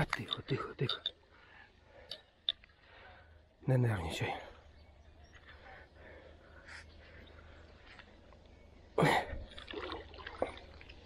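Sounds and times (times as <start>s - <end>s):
water dripping: 9.5s - 11.0s.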